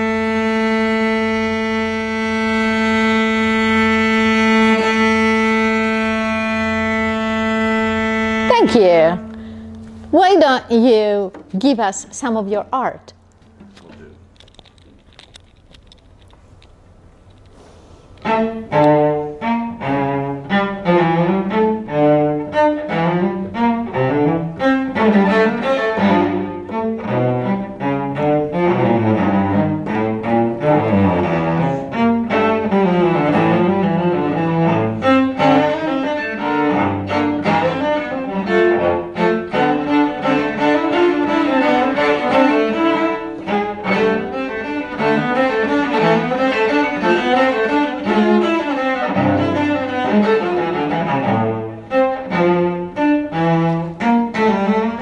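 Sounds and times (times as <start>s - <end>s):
bowed cello melody: 0.0s - 14.3s, 17.6s - 55.0s.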